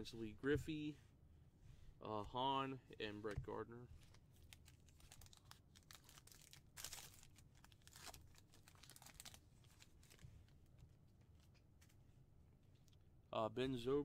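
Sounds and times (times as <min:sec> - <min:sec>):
card pack wrapper crinkling: 0:04.0 - 0:10.2.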